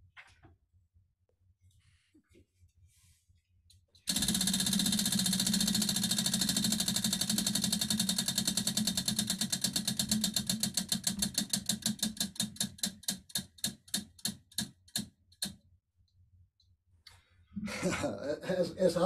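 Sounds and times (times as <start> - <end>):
prize wheel clicking: 4.1 - 15.6.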